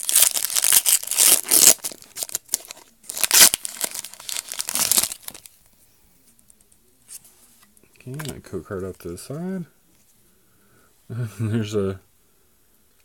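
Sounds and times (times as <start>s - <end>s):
foil wrapper crinkling: 0.0s - 5.5s.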